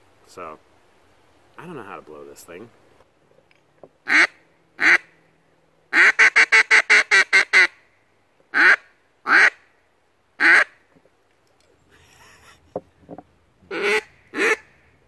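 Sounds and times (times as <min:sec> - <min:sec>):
man talking: 0:00.2 - 0:00.6, 0:01.6 - 0:02.8
duck call quacks: 0:04.1 - 0:05.1, 0:05.9 - 0:07.8, 0:08.5 - 0:09.6, 0:10.4 - 0:10.7, 0:13.7 - 0:14.8.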